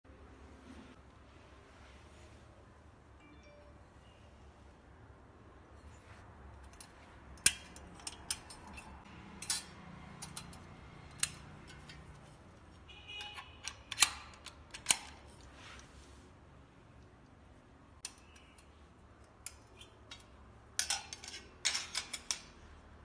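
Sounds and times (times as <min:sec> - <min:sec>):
metal clicks and clinks: 0:06.6 - 0:12.4, 0:18.0 - 0:22.8.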